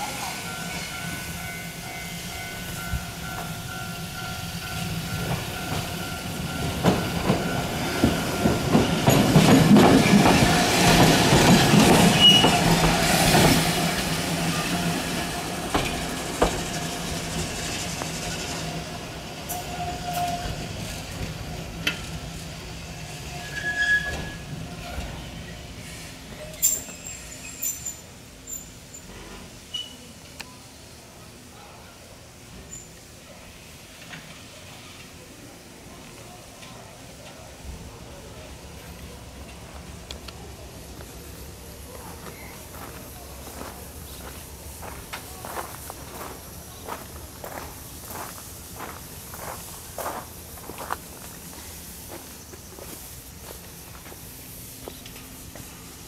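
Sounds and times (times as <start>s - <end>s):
electric tram passing: 0.0s - 29.7s, 33.5s - 56.0s
tram wheels clicking: 2.4s - 22.9s, 38.8s - 56.0s.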